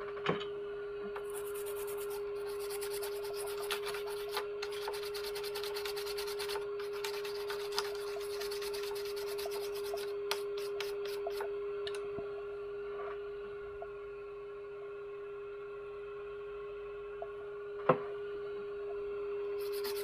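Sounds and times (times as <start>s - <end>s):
steady background hum: 0.0s - 20.0s
scrubbing a circuit board: 1.2s - 11.4s, 19.6s - 20.0s.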